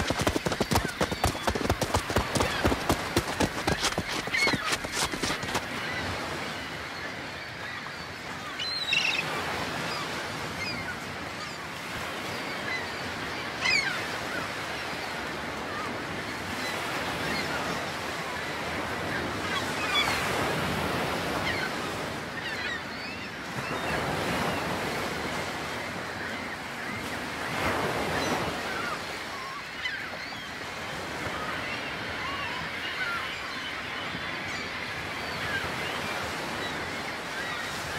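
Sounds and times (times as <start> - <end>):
surf washing against breakwater: 0.0 - 6.5.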